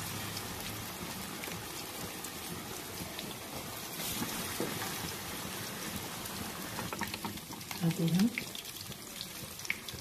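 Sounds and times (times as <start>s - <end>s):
fish deep-frying in oil: 0.0s - 10.0s
small oil pops: 6.8s - 8.6s.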